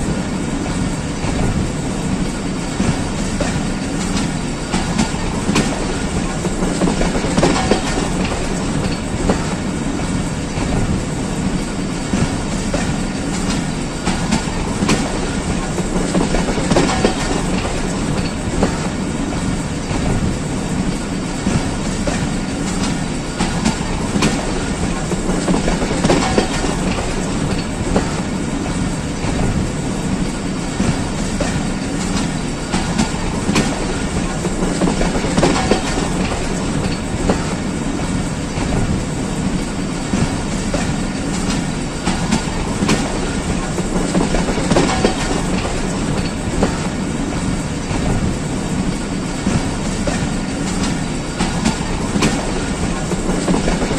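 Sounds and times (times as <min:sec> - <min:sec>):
train wheels rumbling on track: 0:00.0 - 0:53.9
wheels clicking over rail joints: 0:00.2 - 0:53.9.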